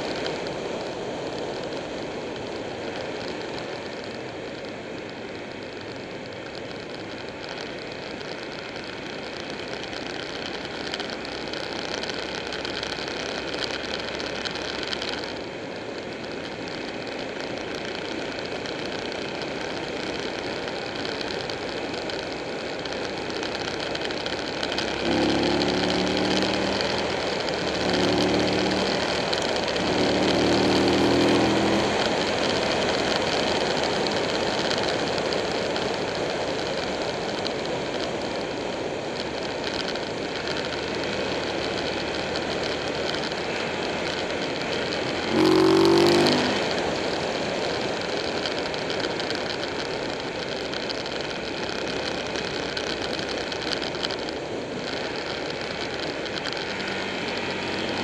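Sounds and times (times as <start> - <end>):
motorcycle engine running: 0.0 - 58.0
wind and road noise: 0.0 - 58.0
steady-pitched engine tone: 19.0 - 37.8, 38.5 - 58.0.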